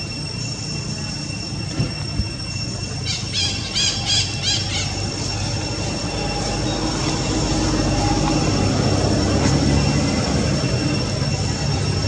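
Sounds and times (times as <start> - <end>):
low motor rumble: 0.0 - 12.0
short high squeaky calls: 2.5 - 5.6.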